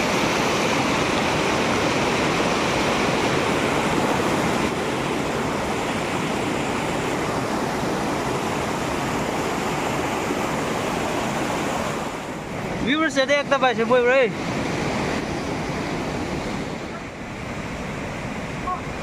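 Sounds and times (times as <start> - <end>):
river rushing over stones: 0.0 - 19.0.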